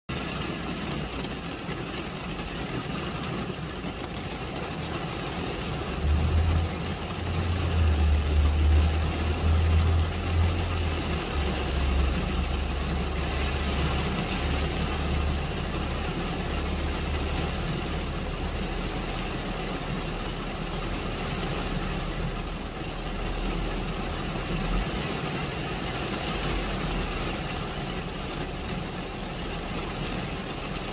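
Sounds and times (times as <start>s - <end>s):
rain on glass: 0.1s - 30.9s
low rumble: 5.6s - 19.4s.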